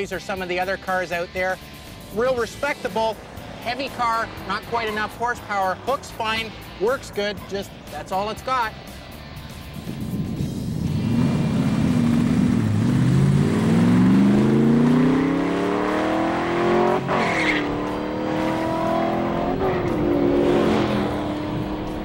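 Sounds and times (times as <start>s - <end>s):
car engine accelerating: 1.7s - 7.9s, 9.8s - 22.0s.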